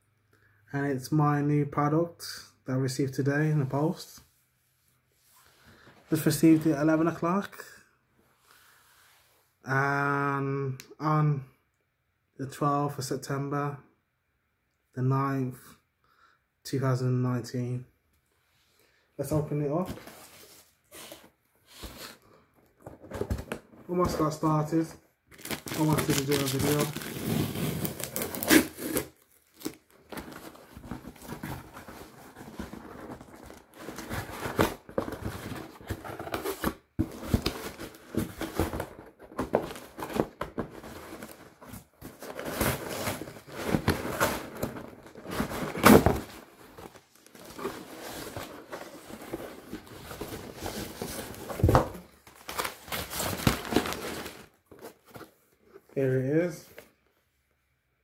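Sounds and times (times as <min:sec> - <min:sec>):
handling of carton: 0:19.3 - 0:24.5, 0:25.3 - 0:55.8
packing material crinkling: 0:25.3 - 0:54.9
cardboard box ripping: 0:25.4 - 0:38.9, 0:42.2 - 0:46.4.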